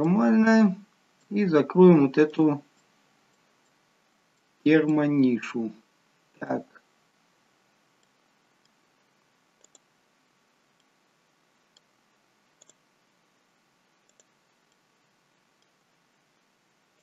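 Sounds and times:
computer mouse clicks: 8.0s - 8.8s, 9.6s - 9.9s, 10.8s - 11.0s, 11.7s - 11.9s, 12.5s - 12.8s, 14.0s - 14.9s.

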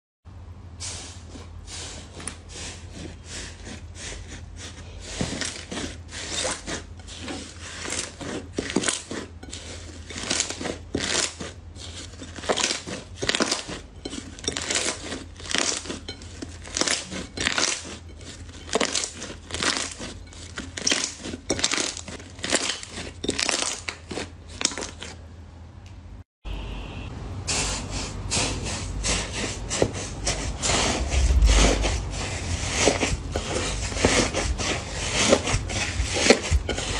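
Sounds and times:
fluffy slime crunchy rustle: 0.8s - 25.2s, 27.6s - 36.9s
slime squelching and crackling: 2.1s - 25.2s.

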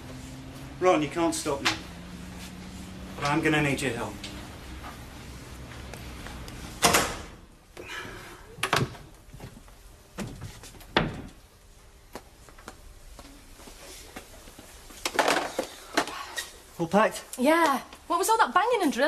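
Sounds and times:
knocks and thuds: 10.2s - 11.4s.

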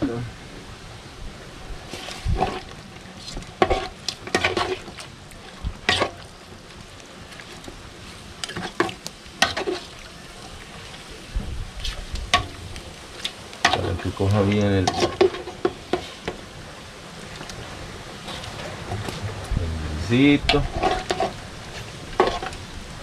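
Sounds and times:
pot sizzling: 1.8s - 22.6s.

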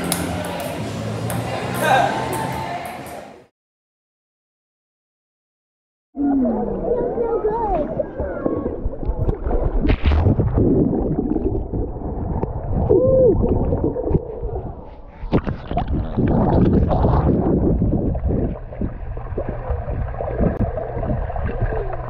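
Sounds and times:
water sloshing and gurgling underwater: 6.2s - 22.0s.

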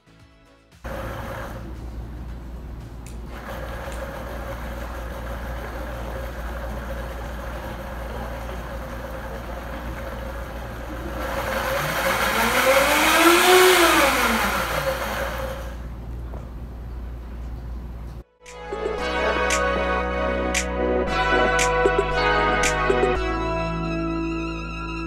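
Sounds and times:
blender motor whining: 0.9s - 1.8s, 3.3s - 15.9s.

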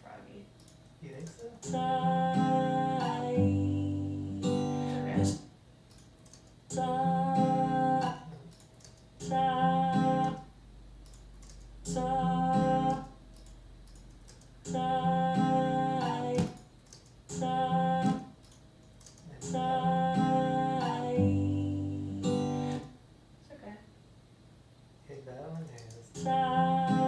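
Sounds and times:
acoustic guitar: 1.6s - 5.5s, 6.7s - 8.5s, 9.2s - 10.6s, 11.7s - 13.3s, 14.5s - 16.6s, 17.2s - 18.4s, 19.3s - 23.0s, 26.1s - 27.0s.

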